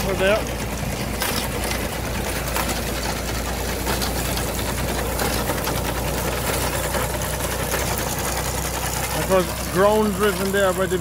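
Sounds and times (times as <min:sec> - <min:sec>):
tractor engine running: 0:00.0 - 0:11.0
reaper binder clattering: 0:00.9 - 0:05.8.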